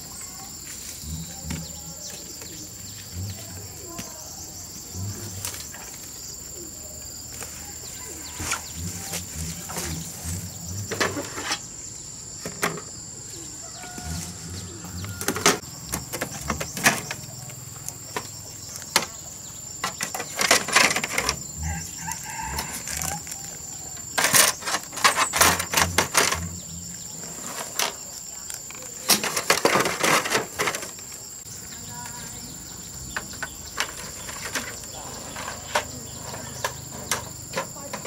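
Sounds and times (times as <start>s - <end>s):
rustling: 13.7s - 31.4s
plastic pieces clattering: 28.6s - 31.1s.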